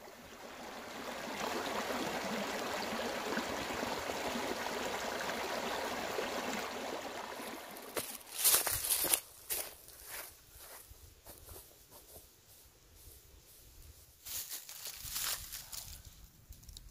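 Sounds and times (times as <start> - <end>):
stream running: 0.0 - 9.6
footsteps on dry leaves: 7.8 - 11.7, 14.2 - 16.1.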